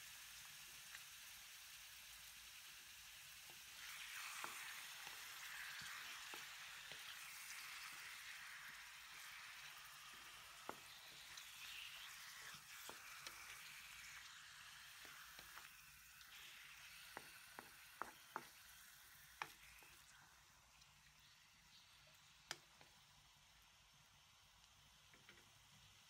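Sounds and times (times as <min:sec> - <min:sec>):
meat and onion sizzling in oil: 0:00.0 - 0:26.0
spatula knocking against wok: 0:17.1 - 0:18.6.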